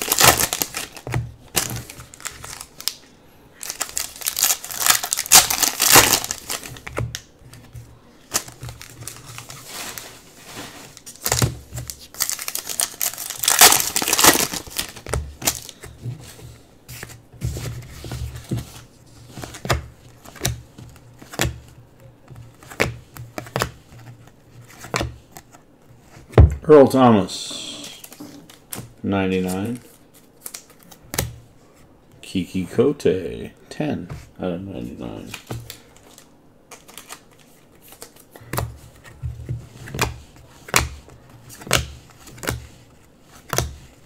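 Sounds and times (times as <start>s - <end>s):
foil pack tearing and crinkling: 0.0s - 3.0s, 3.6s - 6.9s, 11.0s - 15.7s.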